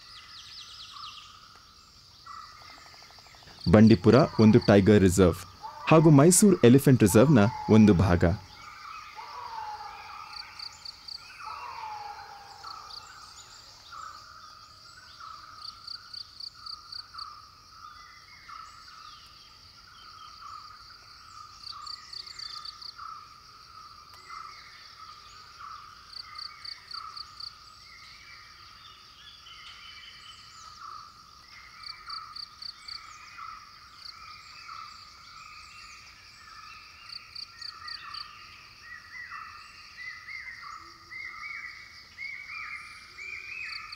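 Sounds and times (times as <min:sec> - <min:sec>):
chorus of calling animals: 0:02.3 - 0:16.0
falling whistled calls: 0:02.7 - 0:13.9.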